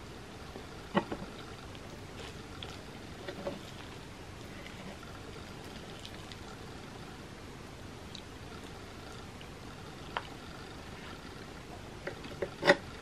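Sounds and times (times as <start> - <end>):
soft chewing: 1.0 - 7.0, 8.0 - 11.4.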